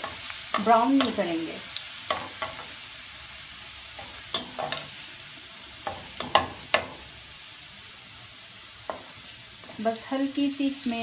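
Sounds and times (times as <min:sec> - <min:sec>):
garlic sizzling in hot oil: 0:00.0 - 0:11.0.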